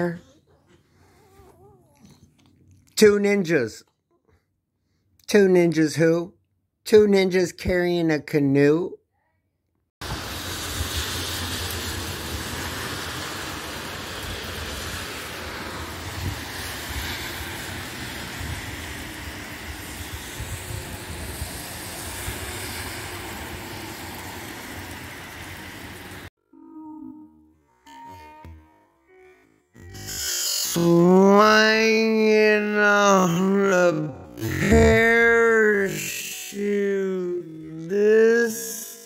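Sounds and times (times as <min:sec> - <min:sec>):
heavy rain: 0:10.0 - 0:26.3.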